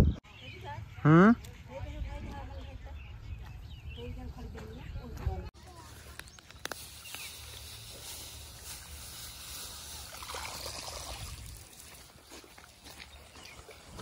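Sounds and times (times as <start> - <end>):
leaves rustling: 5.6 - 14.0
wet mud squelching: 5.9 - 14.0
water trickling: 6.7 - 14.0.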